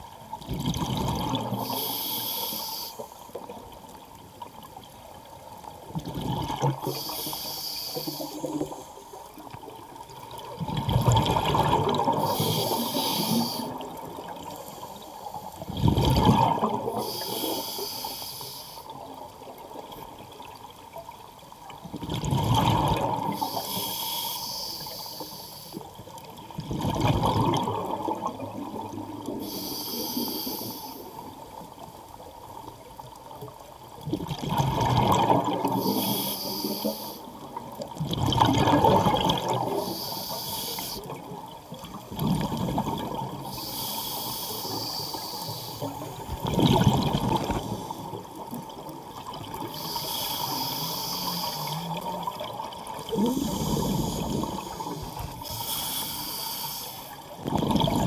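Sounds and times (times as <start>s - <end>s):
regulator inhale hiss: 1.6s - 3.5s, 6.8s - 9.3s, 12.1s - 15.7s, 16.9s - 19.0s, 23.3s - 26.2s, 29.4s - 31.4s, 35.6s - 37.4s, 39.6s - 41.2s, 43.4s - 46.3s, 49.6s - 52.2s, 53.1s - 57.4s
burst of bubbles: 15.8s - 17.0s, 34.1s - 35.8s, 38.0s - 39.8s, 46.3s - 47.8s, 57.4s - 58.0s.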